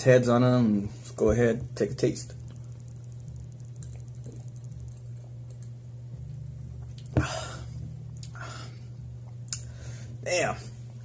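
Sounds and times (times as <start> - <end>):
steady low hum: 0.0 - 11.0
breathy exhales: 7.1 - 9.0.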